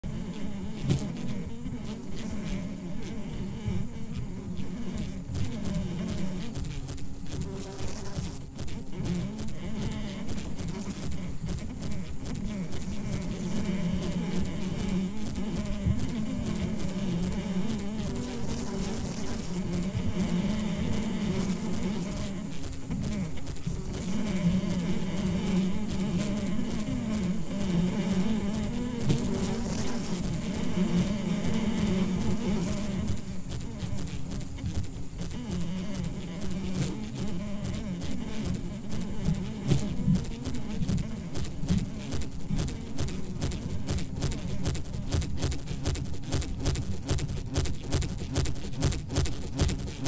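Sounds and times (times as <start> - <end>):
fly buzzing: 0.0 - 50.0
light crackling: 0.2 - 50.0.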